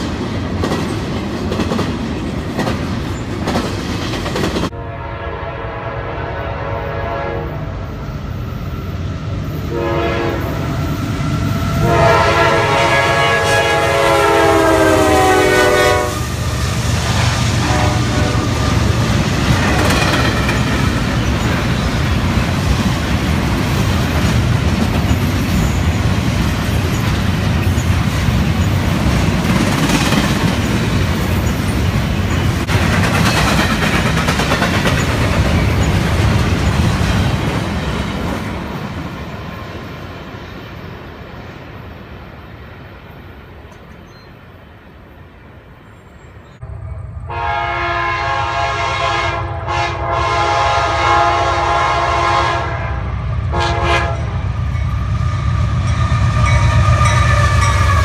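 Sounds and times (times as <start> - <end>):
diesel locomotive engines rumbling: 0.0 - 58.0
train rumble and wheel clatter: 0.0 - 58.0
locomotive air horn blasts: 4.7 - 7.8, 9.6 - 10.7, 11.7 - 16.4, 17.6 - 18.8, 47.2 - 54.4.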